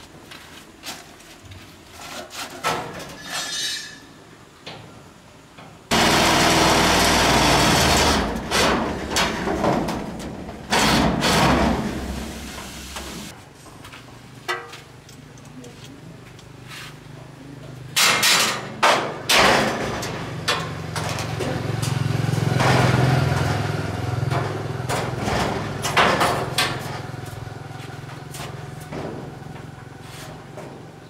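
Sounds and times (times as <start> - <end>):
power tool running: 5.9 - 8.4.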